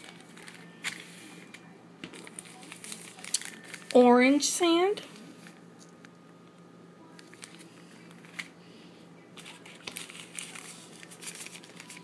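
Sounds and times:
plastic bag crinkling: 0:02.1 - 0:04.2, 0:07.2 - 0:08.5, 0:09.4 - 0:12.0.

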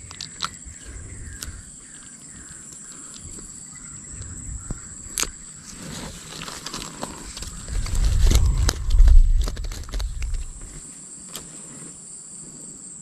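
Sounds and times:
rustling: 0:05.0 - 0:12.0.

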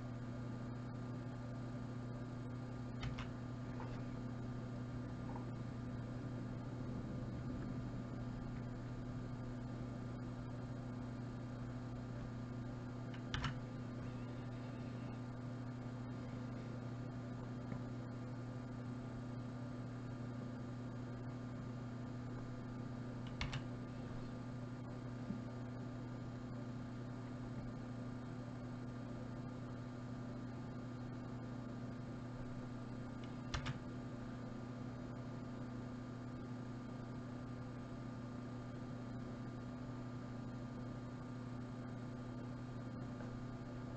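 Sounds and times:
electrical mains hum: 0:00.0 - 0:43.9
sharp clicks: 0:13.1 - 0:13.6, 0:23.3 - 0:23.7.

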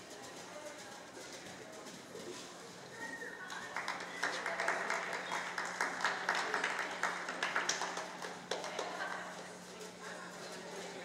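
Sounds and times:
spectators applauding: 0:03.5 - 0:09.4.

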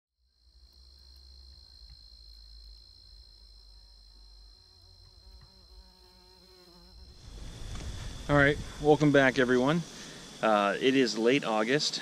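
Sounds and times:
flying insect buzzing: 0:00.2 - 0:12.0
high-pitched insect chorus: 0:00.2 - 0:12.0
low rumble: 0:06.9 - 0:10.4.

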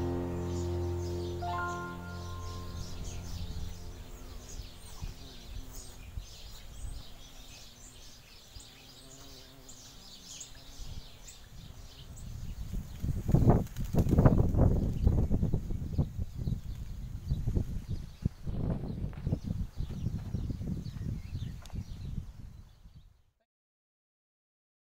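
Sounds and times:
low outdoor rumble: 0:00.0 - 0:06.2
small birds chirping: 0:00.0 - 0:23.2.

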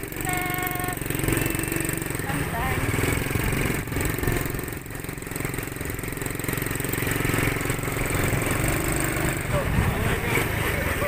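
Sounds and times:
quad bike engine running: 0:00.0 - 0:11.0.

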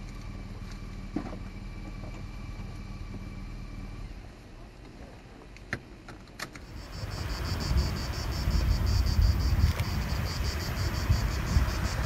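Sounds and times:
insects chirping: 0:06.6 - 0:12.0
wind rumbling on microphone: 0:06.6 - 0:12.0.

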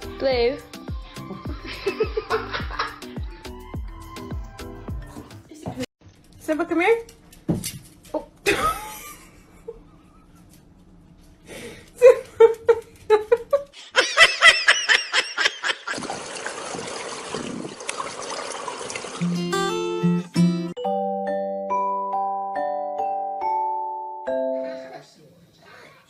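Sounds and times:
person laughing hard: 0:01.5 - 0:03.1, 0:12.0 - 0:16.0.

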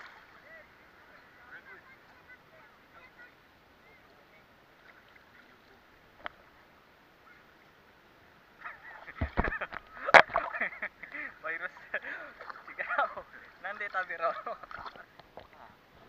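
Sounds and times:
water lapping and sloshing: 0:00.0 - 0:00.6, 0:03.9 - 0:06.6, 0:08.6 - 0:16.0.

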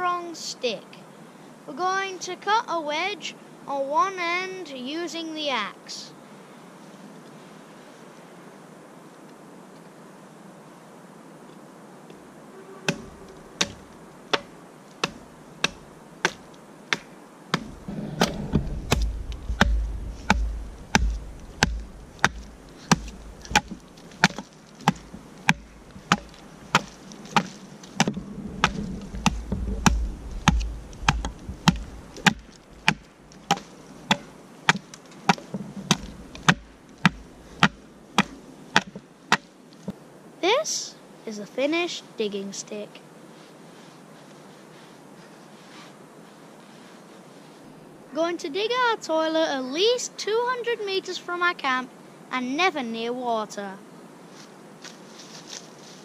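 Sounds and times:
axe chopping wood: 0:12.9 - 0:39.5.

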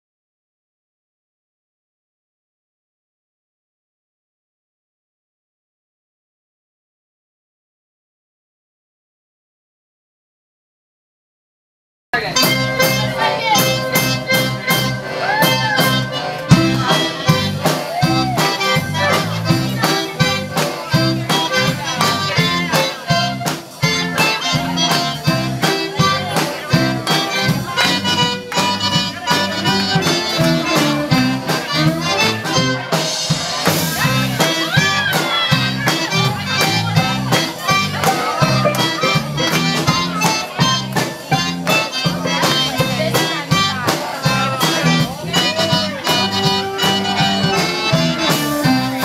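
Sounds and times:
accordion: 0:12.2 - 0:49.0
drum kit beat: 0:12.2 - 0:49.0
guitar: 0:12.2 - 0:49.0.

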